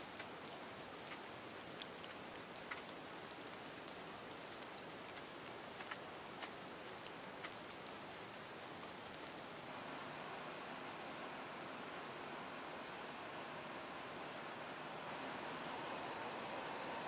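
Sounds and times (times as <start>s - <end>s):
raindrop ticks: 0.0s - 9.7s
light rain falling: 0.0s - 17.0s.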